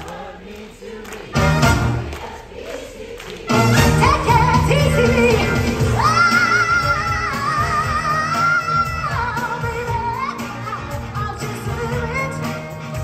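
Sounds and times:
live soul band: 3.5s - 13.0s
woman singing: 3.9s - 13.0s.

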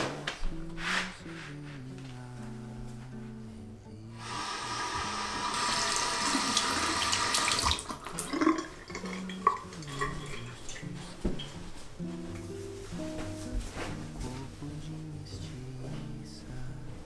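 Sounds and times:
tap water running over hands: 4.7s - 10.8s.

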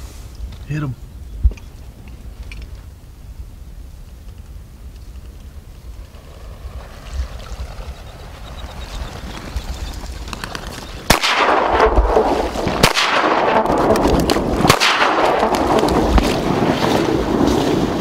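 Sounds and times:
shotgun shots with echo: 11.1s - 16.3s.

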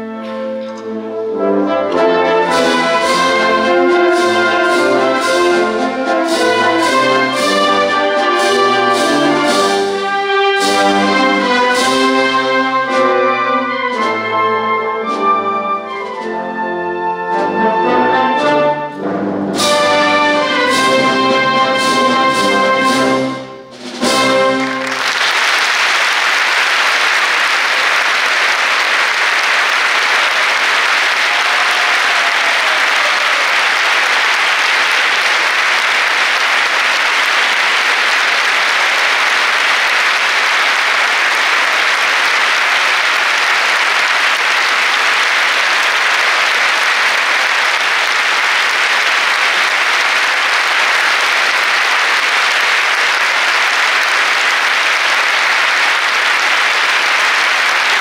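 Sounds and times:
audience applauding: 2.4s - 13.1s, 24.0s - 58.0s.

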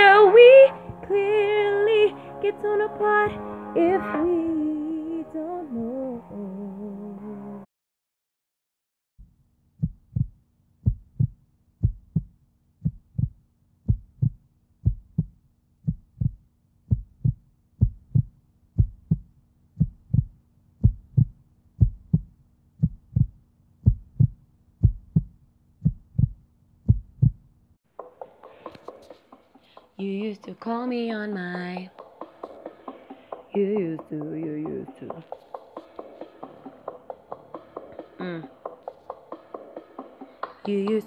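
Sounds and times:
heartbeat thumps: 9.8s - 27.5s.

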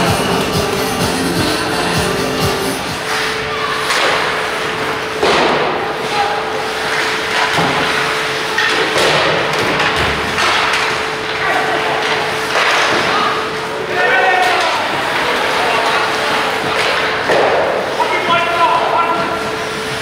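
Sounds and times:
hall hum: 0.0s - 6.2s
hockey sticks and puck knocking: 6.8s - 13.6s, 14.4s - 18.3s.

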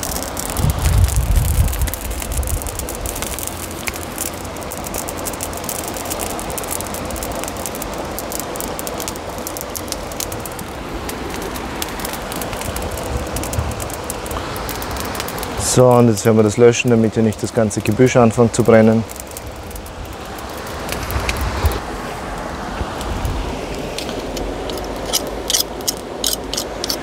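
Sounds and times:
low rumble: 0.0s - 5.6s
fire crackling and popping: 0.0s - 27.0s.

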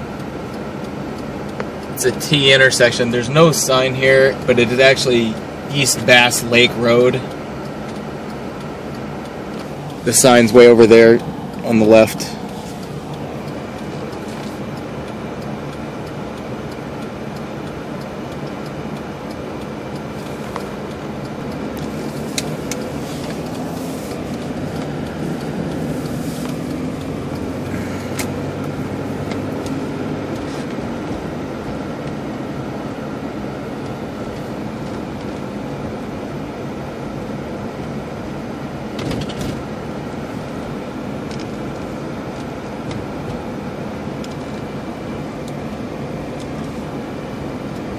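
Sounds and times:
car road noise inside cabin: 0.0s - 47.9s
rustle: 25.8s - 26.8s.

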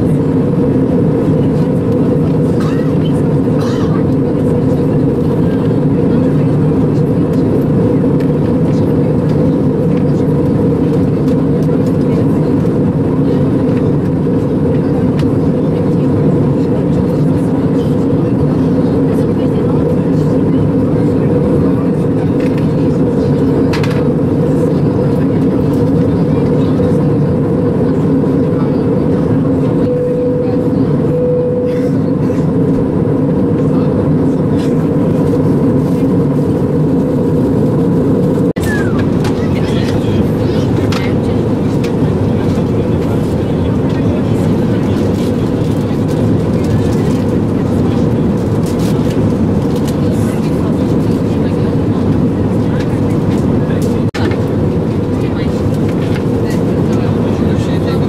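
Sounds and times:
aircraft cabin engine roar: 0.0s - 58.0s
high tone: 29.7s - 32.6s.

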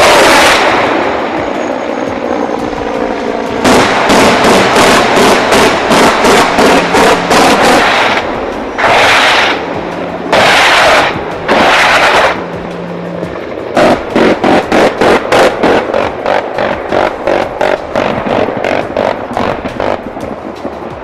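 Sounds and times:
helicopter gunfire bursts: 0.0s - 1.6s, 3.6s - 9.7s, 10.3s - 12.4s, 13.6s - 20.0s
background music: 0.0s - 21.0s.

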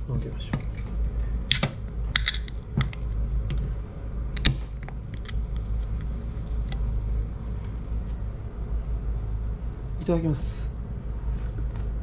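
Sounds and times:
steady low hum: 0.0s - 12.0s.

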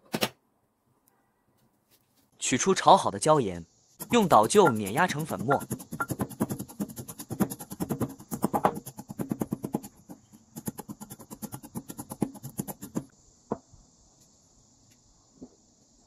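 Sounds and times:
pestle grinding in mortar: 4.0s - 13.1s.

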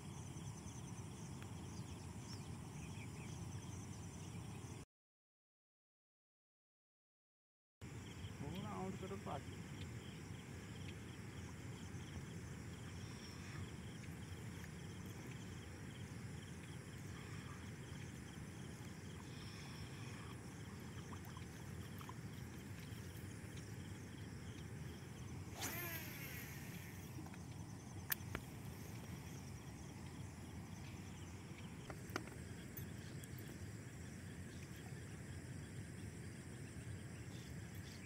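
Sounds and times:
sharp sound with falling pitch: 25.6s - 27.0s.

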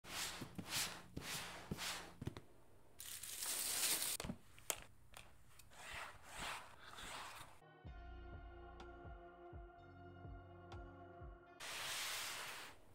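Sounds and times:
tissue paper crinkling: 3.0s - 4.2s
paper packaging rustling: 3.0s - 4.4s.

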